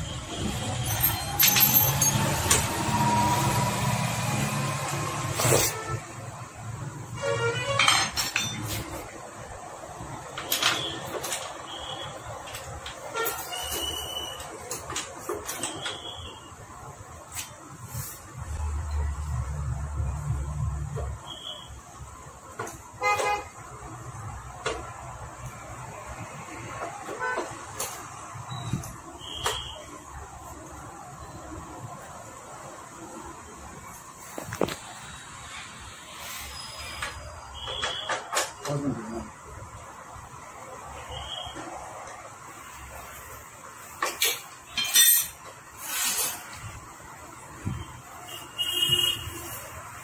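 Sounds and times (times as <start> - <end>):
hand tools scraping and clinking: 0.6 - 2.8, 7.2 - 9.2, 12.4 - 16.1, 43.8 - 46.8.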